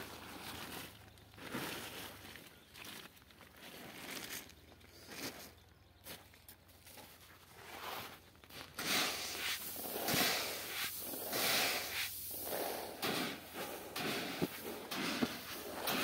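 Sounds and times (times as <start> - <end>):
grain pouring onto a heap: 8.7 - 16.0.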